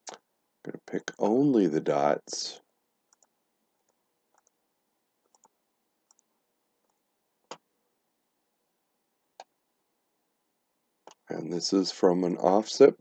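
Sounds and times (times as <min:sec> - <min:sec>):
computer mouse clicks: 0:03.1 - 0:04.6, 0:05.2 - 0:07.6.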